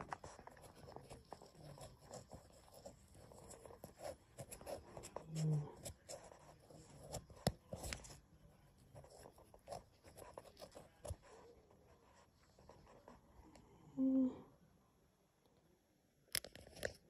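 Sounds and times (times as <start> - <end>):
rustling and handling: 0.0 - 13.6.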